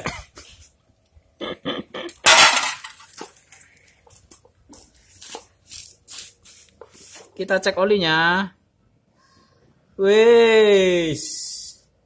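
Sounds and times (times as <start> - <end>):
objects clinking and rattling: 2.2 - 3.4
crinkling clatter: 2.2 - 7.3.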